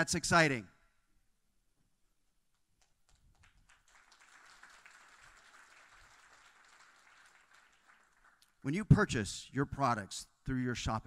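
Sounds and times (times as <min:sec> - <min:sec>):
audience applause: 0:03.1 - 0:08.6.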